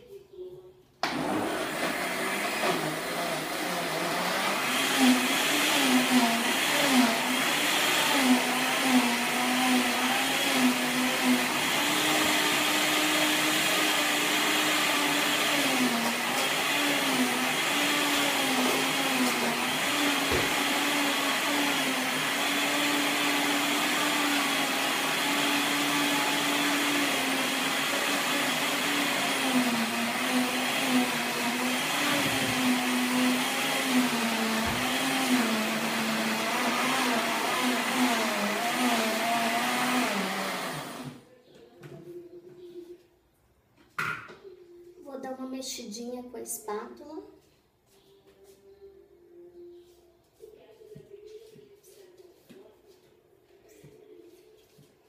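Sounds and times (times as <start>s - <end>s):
blender running: 1.0s - 41.2s.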